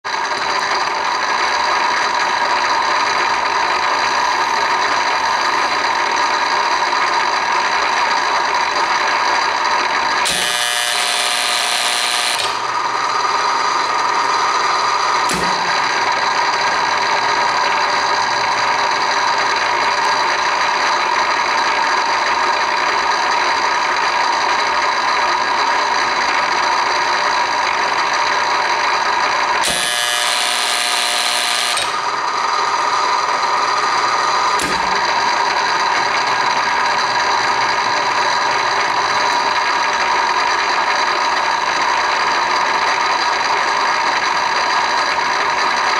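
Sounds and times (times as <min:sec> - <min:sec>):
harsh machine sound: 0:00.1 - 0:45.9
machine motor whine: 0:00.1 - 0:45.9
sharp click: 0:15.2 - 0:15.8, 0:34.6 - 0:35.2.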